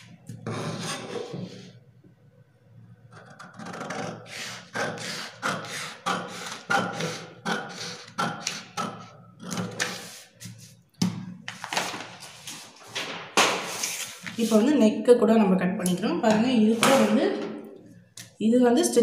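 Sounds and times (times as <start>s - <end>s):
paper rustling: 11.5s - 14.7s.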